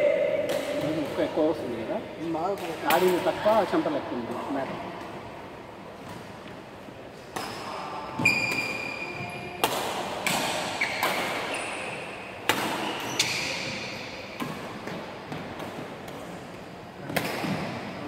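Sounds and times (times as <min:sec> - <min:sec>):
racket hitting shuttlecock: 0:00.3 - 0:01.2, 0:07.3 - 0:16.4, 0:17.0 - 0:17.9.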